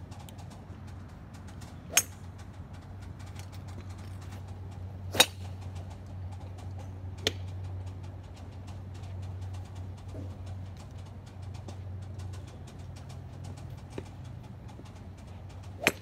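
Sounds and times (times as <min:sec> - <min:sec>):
golf club striking ball: 0:01.9 - 0:02.3, 0:05.1 - 0:05.6, 0:15.8 - 0:16.0.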